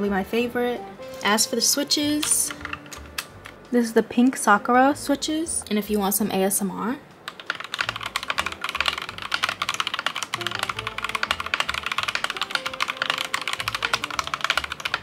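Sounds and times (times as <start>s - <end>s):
soft background music: 0.0s - 15.0s
mechanical keyboard typing: 2.1s - 3.2s, 7.3s - 15.0s.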